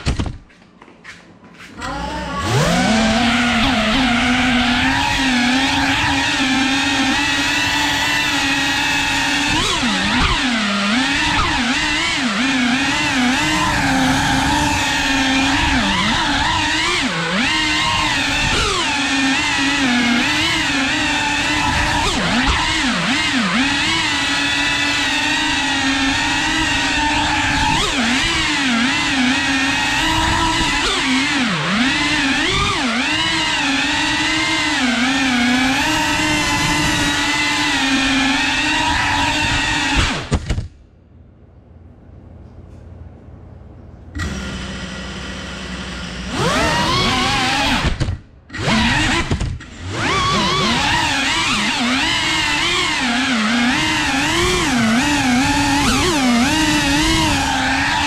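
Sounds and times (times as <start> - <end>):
drone propellers whining: 1.7 - 40.7, 44.1 - 58.0.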